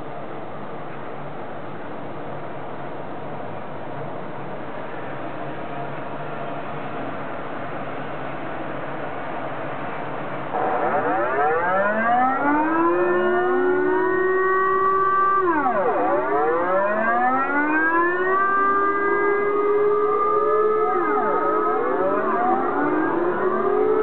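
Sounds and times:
air raid sirens wailing: 10.2s - 24.0s.

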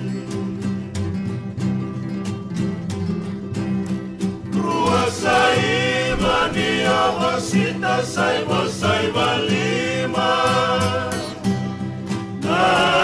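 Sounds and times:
strummed acoustic guitars and ukulele: 0.0s - 13.0s
male vocal group singing in harmony: 4.5s - 13.0s.

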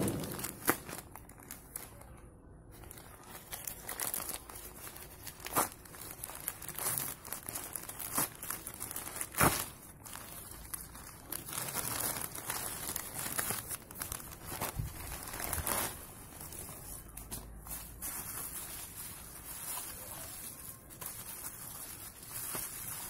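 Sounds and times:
plastic and bubble wrap crinkling: 0.0s - 23.0s.

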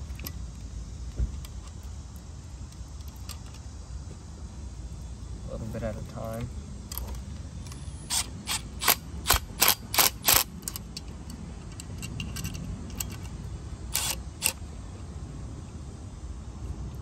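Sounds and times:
power driver short bursts: 13.9s - 14.6s.

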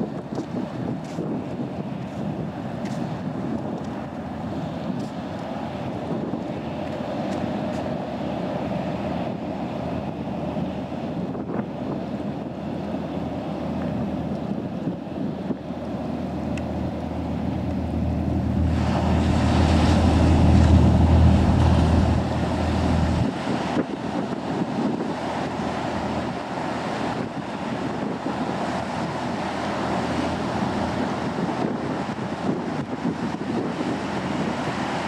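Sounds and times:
ferry engine drone: 0.0s - 35.0s
rush of boat wake: 0.0s - 35.0s
wind buffeting microphone: 0.0s - 35.0s.

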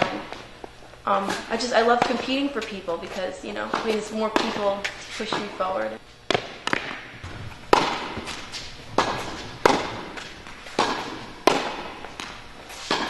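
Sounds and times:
tennis ball strikes echoing: 0.0s - 0.4s, 1.2s - 13.0s.

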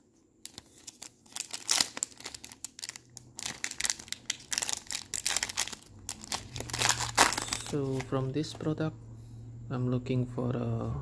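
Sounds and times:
foil wrapper crinkling and tearing: 0.4s - 8.2s.

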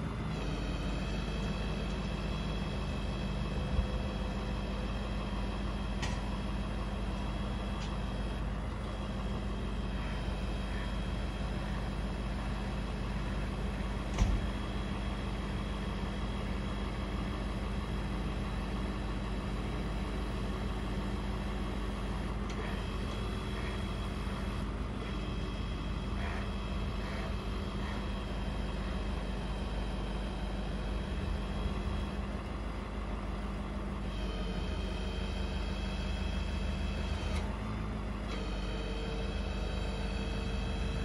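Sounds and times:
truck engine humming: 0.0s - 41.0s
sharp clunk: 14.1s - 14.5s.

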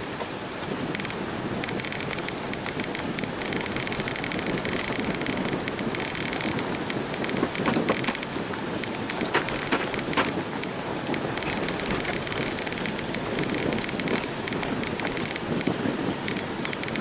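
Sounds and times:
tyres rumbling on dirt track: 0.0s - 17.0s
vehicle rattling over bumps: 0.0s - 17.0s
wind: 0.0s - 17.0s
sharp knocks: 8.9s - 15.5s.

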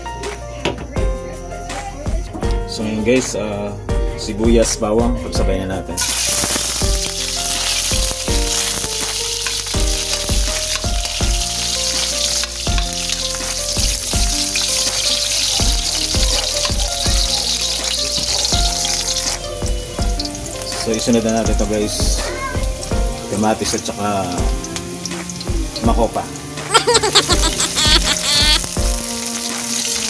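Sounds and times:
background music with steady beat: 0.0s - 30.0s
onions sizzling in hot oil: 6.0s - 30.0s.

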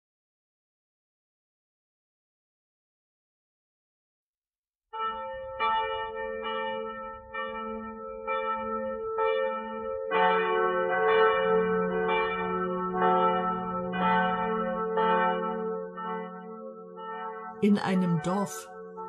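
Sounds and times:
church bells ringing: 5.0s - 19.0s.

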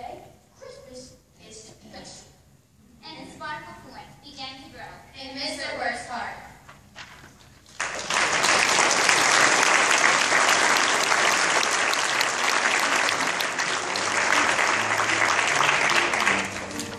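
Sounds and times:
audience applauding: 7.6s - 16.9s
musical notes: 12.8s - 16.9s.

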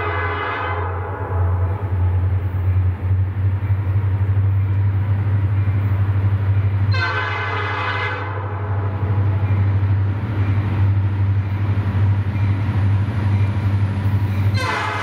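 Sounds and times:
locomotive horn chord: 0.0s - 2.1s, 6.9s - 9.0s, 14.5s - 15.0s
diesel engine low rumble: 0.0s - 15.0s.

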